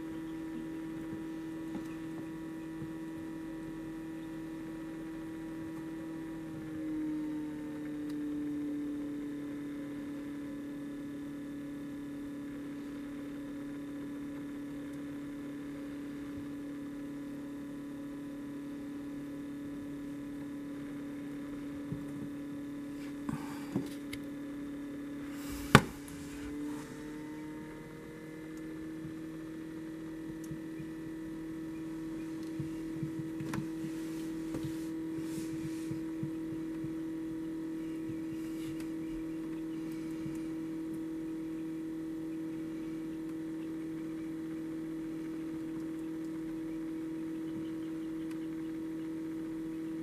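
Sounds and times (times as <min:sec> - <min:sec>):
electrical fan motor hum: 0:00.0 - 0:50.0.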